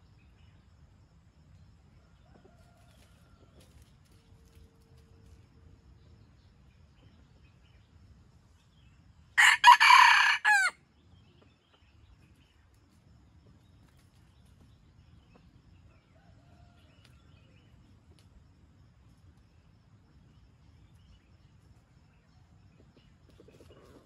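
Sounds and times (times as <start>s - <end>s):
rooster crowing: 9.4s - 10.8s.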